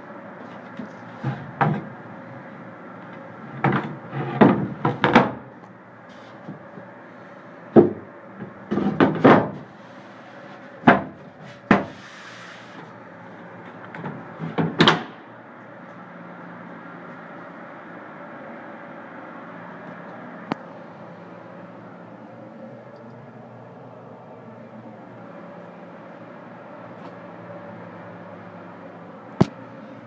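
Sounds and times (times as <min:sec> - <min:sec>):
plywood panels knocking and clattering: 0:03.6 - 0:05.5, 0:07.8 - 0:08.0, 0:08.7 - 0:09.6, 0:10.8 - 0:12.0.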